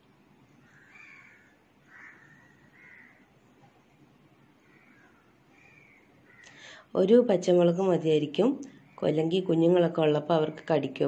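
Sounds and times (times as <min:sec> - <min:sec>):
faint low hiss: 0:00.0 - 0:11.0
faint short bird-like calls: 0:00.6 - 0:03.3, 0:04.6 - 0:06.8.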